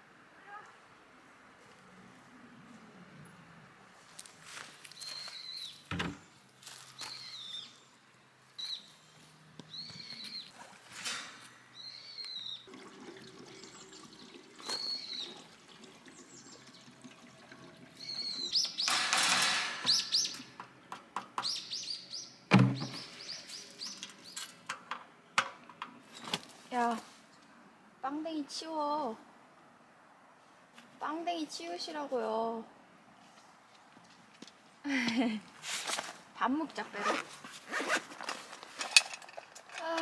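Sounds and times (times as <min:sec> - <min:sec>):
bird chirping: 0:04.9 - 0:05.9, 0:06.9 - 0:10.6, 0:11.7 - 0:12.7, 0:13.6 - 0:15.4, 0:18.0 - 0:18.9, 0:19.9 - 0:20.6, 0:21.4 - 0:24.5.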